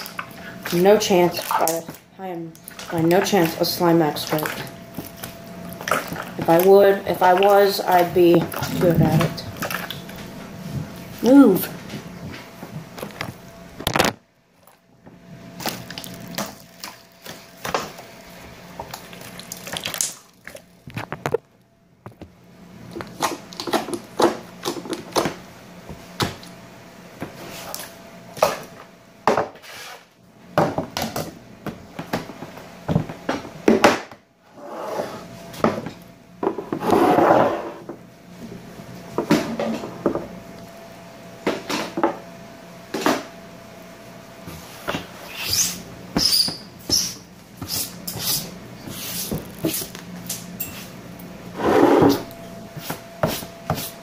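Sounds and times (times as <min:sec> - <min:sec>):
slime squelching: 0:00.0 - 0:10.3
faint steady hum: 0:00.0 - 0:54.0.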